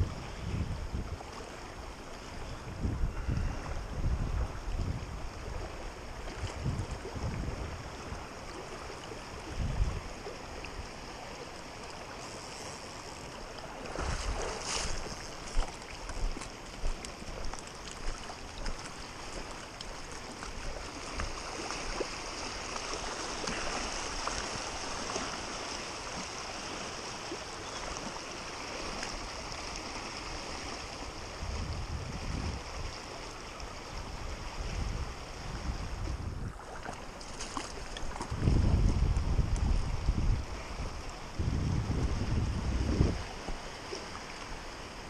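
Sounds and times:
wind buffeting microphone: 0:00.0 - 0:01.4, 0:02.4 - 0:08.3, 0:09.2 - 0:10.9, 0:31.0 - 0:33.0, 0:33.8 - 0:44.8
creek water rushing over rocks: 0:00.0 - 0:45.0.

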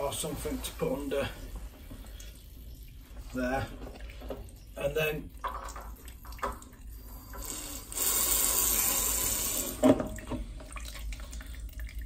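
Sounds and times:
water spurting into a plastic jug: 0:05.4 - 0:12.0.

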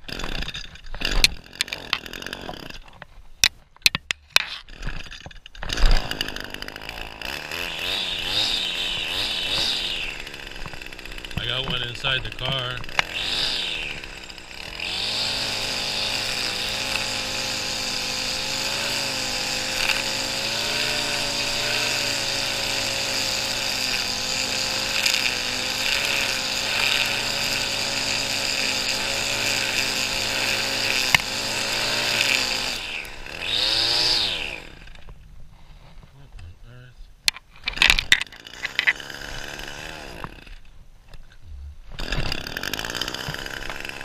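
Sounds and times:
lawn mower engine running: 0:05.6 - 0:35.1, 0:37.3 - 0:40.7, 0:41.9 - 0:44.0.

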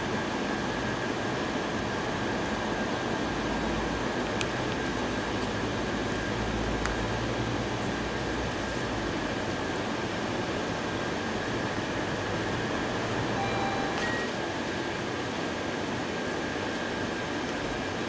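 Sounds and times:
ventilation hum and hiss: 0:00.0 - 0:18.0
faint high whine: 0:13.2 - 0:14.6
short faint tones: 0:13.3 - 0:14.4.

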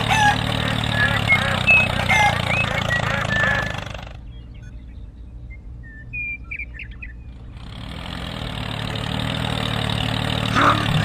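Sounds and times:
small tractor engine: 0:00.0 - 0:04.6, 0:07.2 - 0:11.0
birds chirping: 0:00.0 - 0:11.0
low hum: 0:00.0 - 0:11.0.

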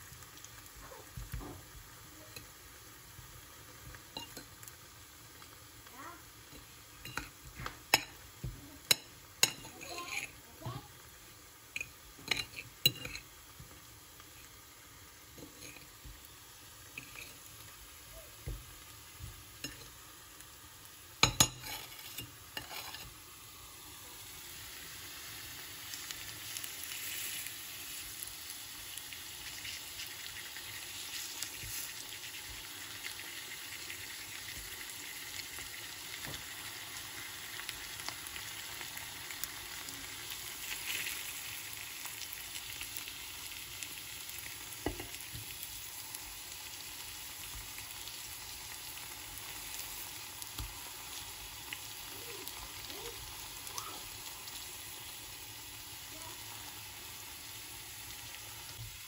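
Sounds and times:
bananas sizzling in oil: 0:00.0 - 0:59.0
fork clinking on plate: 0:11.8 - 0:13.2.

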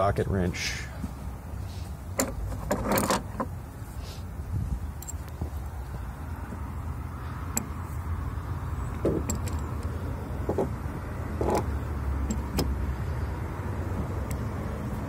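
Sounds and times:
steady low rumble: 0:03.4 - 0:15.0
metallic ratchet clicks and clanks: 0:09.0 - 0:09.9.

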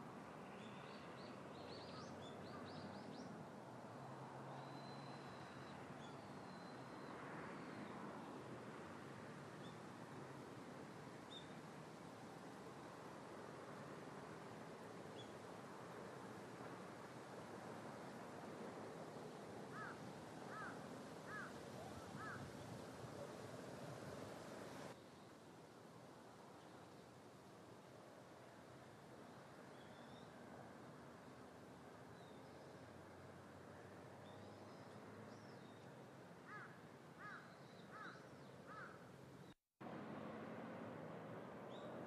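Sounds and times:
outdoor background noise: 0:00.0 - 0:42.0
bird calling: 0:19.7 - 0:22.5.

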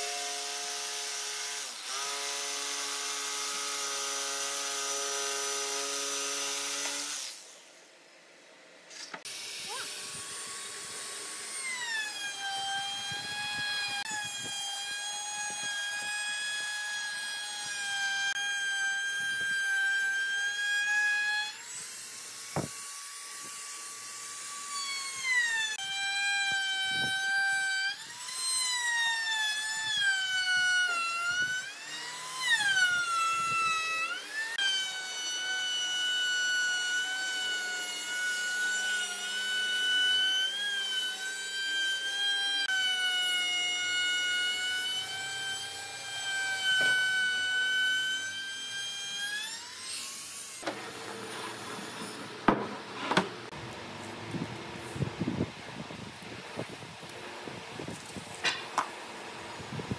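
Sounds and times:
electric router whining: 0:09.2 - 0:52.5.

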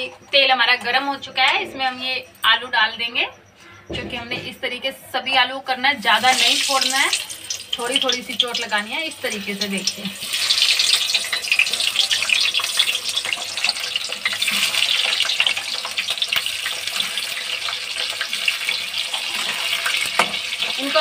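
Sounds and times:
hot oil sizzling and crackling: 0:06.0 - 0:21.0.

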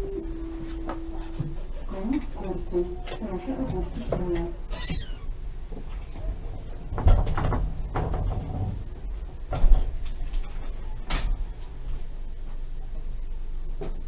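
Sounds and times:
tram low rumble: 0:00.0 - 0:14.0
tram doors knocking and thudding: 0:02.2 - 0:11.5.

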